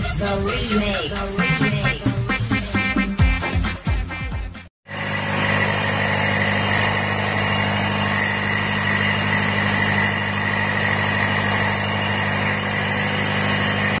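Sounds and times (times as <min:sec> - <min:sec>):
diesel engine idling: 0:04.9 - 0:14.0.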